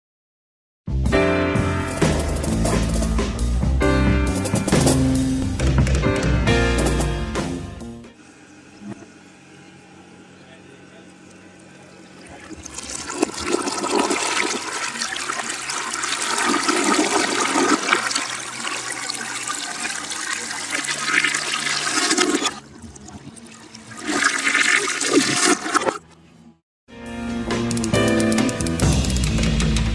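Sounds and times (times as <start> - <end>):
reversed toilet flush: 11.3 - 26.0.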